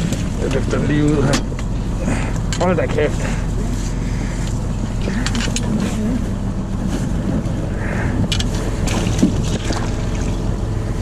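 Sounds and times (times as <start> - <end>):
boat engine running: 0.0 - 11.0
fish knocking in a bucket: 8.8 - 10.4.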